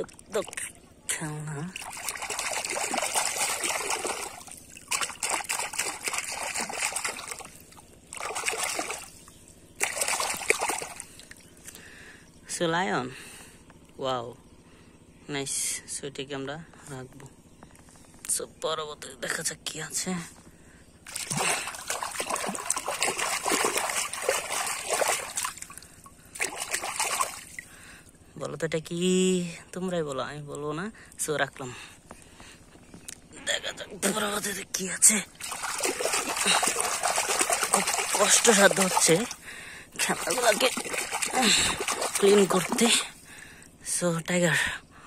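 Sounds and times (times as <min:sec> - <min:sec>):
water splashing and sloshing: 0:00.0 - 0:12.1, 0:20.5 - 0:28.2, 0:34.1 - 0:43.7.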